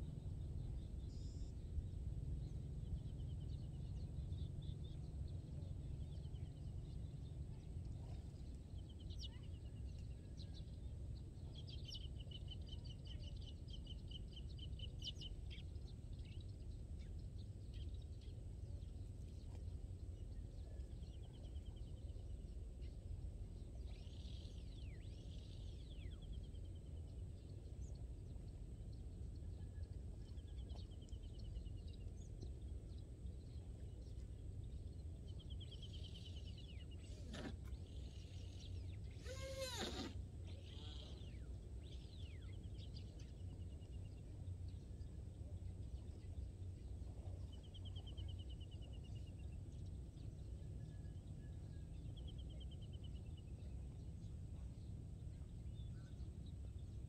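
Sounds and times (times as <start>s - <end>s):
steady low rumble: 0.0s - 39.2s, 40.2s - 57.0s
birds calling in rapid trills: 35.3s - 44.7s.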